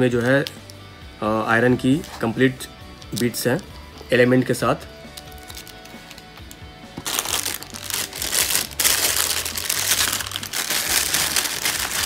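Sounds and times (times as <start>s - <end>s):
packaging crinkling and rustling: 5.2s - 12.0s.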